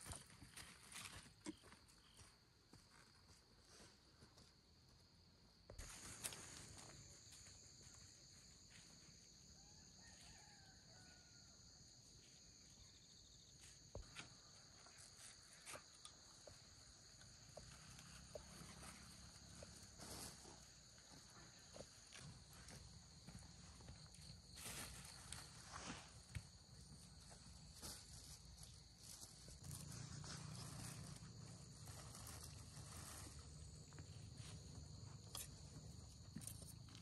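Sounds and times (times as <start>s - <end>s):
high-pitched insect chorus: 5.7s - 37.0s.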